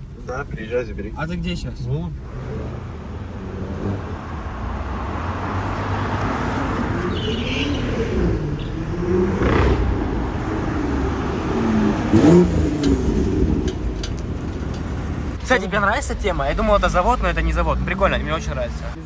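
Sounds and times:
street traffic engines: 0.0 - 19.0
car engine revving up close: 2.2 - 14.0.

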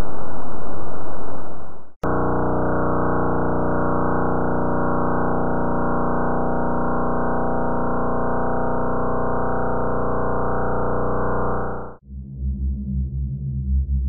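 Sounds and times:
buzz of rapid pulses: 2.0 - 12.0.

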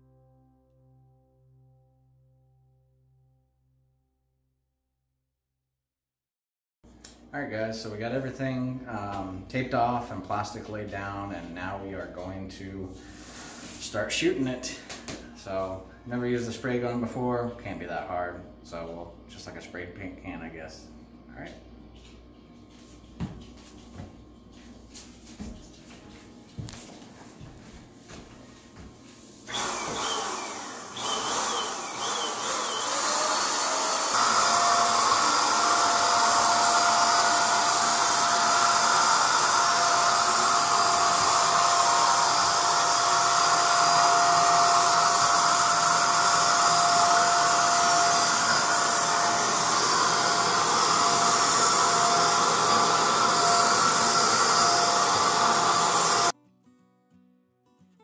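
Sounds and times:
paint sprayer whining: 29.4 - 56.3.

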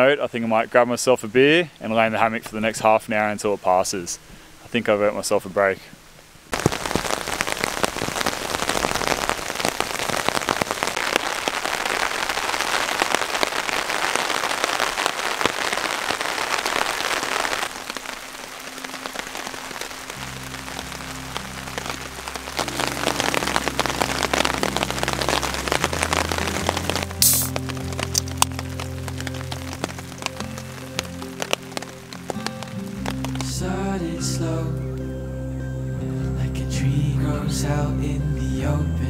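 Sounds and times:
steady rain on a tarp: 0.0 - 34.7
background music with low notes: 18.6 - 39.0.

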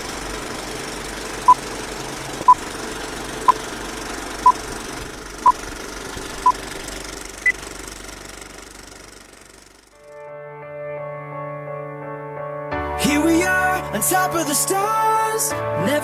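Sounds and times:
film projector clatter: 0.0 - 9.9.

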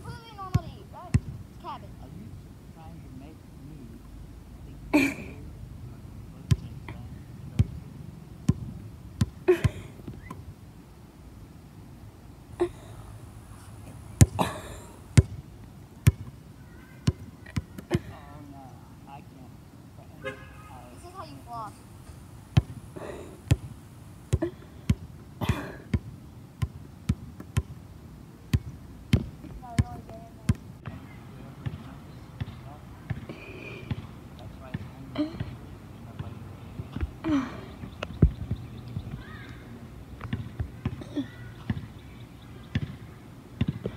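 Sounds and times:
breathy voice sound: 22.9 - 23.5, 33.3 - 34.0, 37.2 - 37.8.

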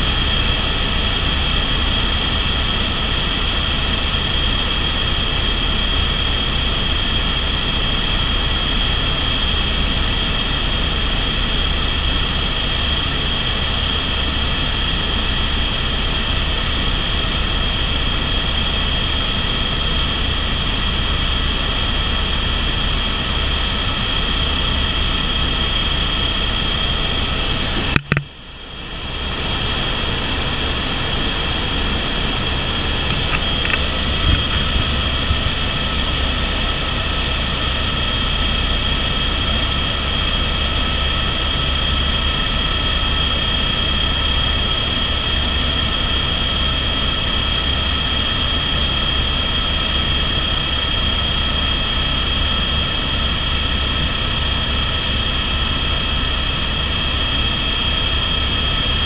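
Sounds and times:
helicopter rotor rumble: 0.0 - 59.0
high turbine whine: 0.0 - 59.0.

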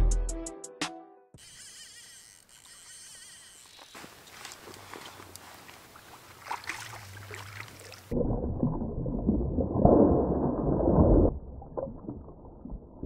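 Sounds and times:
fish splashing in water: 2.7 - 8.2
water sloshing: 3.4 - 8.2.

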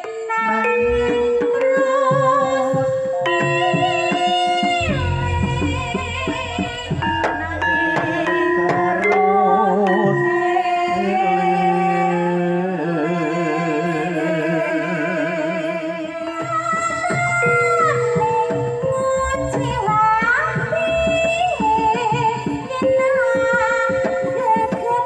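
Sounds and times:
struck bronze gamelan instruments: 0.3 - 13.3
woman singing long held notes: 0.9 - 20.4.

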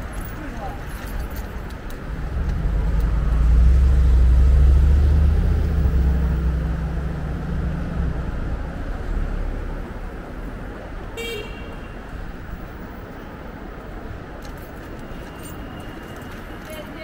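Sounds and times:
vehicle engine rumble passing: 2.0 - 10.4.

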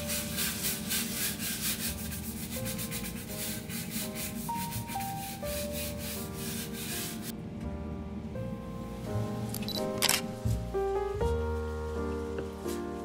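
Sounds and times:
scrub brush scrubbing tiles: 0.0 - 7.3
light background music: 0.0 - 13.0.

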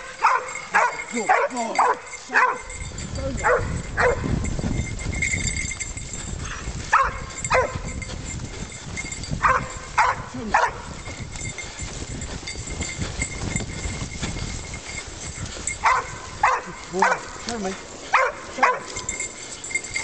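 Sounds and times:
dog barking: 0.2 - 2.7, 3.4 - 4.3, 6.9 - 7.8, 9.4 - 10.8, 15.8 - 17.4, 18.1 - 19.0.

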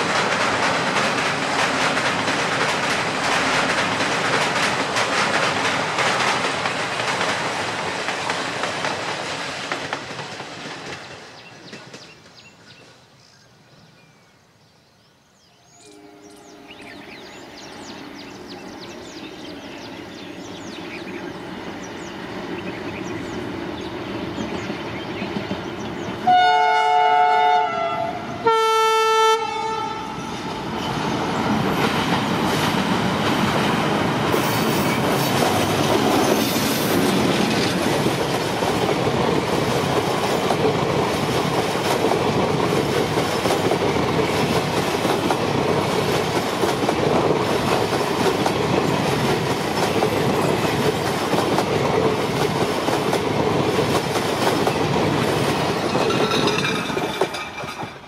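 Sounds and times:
train wheels rumbling on bridge: 0.0 - 12.9, 16.4 - 28.6, 29.4 - 58.0
locomotive horn blasts: 15.8 - 17.0, 26.2 - 30.2.

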